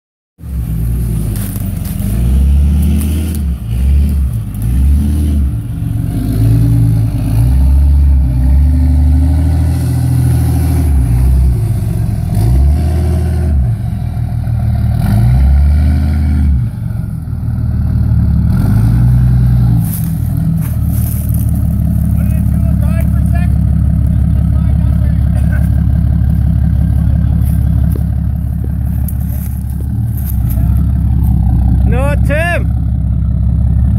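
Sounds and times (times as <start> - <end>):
diesel truck engine revving: 0.4 - 33.9.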